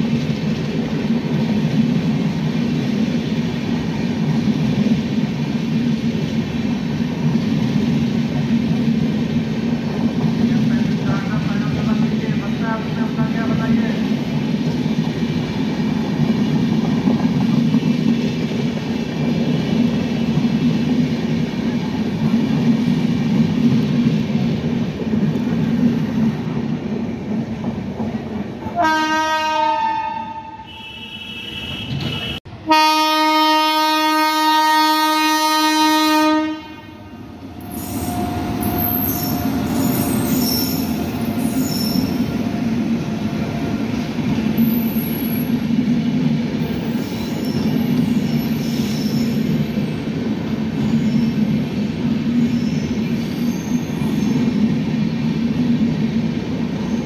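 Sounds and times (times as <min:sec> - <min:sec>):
train wheels rumbling on rail: 0:00.0 - 0:57.0
locomotive horn blasts: 0:28.8 - 0:37.2
high wheel squeals: 0:37.6 - 0:42.4.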